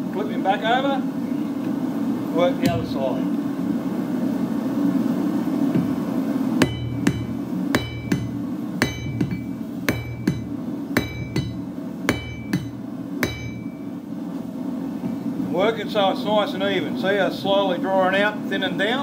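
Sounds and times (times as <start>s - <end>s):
hammer striking hot metal on anvil: 6.6s - 14.0s.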